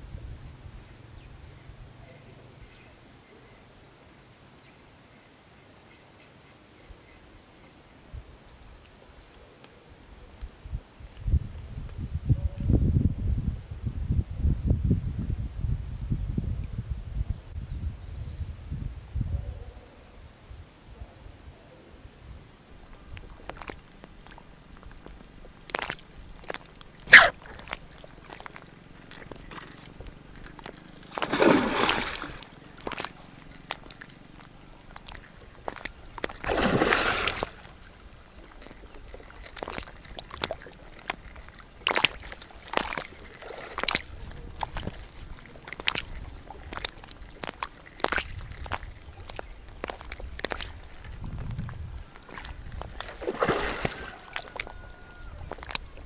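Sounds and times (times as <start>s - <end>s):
fish splashing in water: 23.3s - 51.2s, 52.0s - 56.0s.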